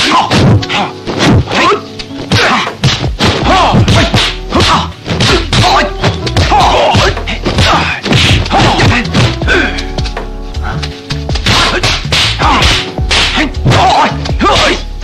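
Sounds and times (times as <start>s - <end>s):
punch and block whacks: 0.0s - 1.6s, 2.3s - 6.6s, 7.5s - 9.4s, 11.4s - 14.8s
film music: 0.0s - 15.0s
fighters shouting: 1.6s - 2.8s, 3.4s - 9.9s, 11.4s - 14.8s.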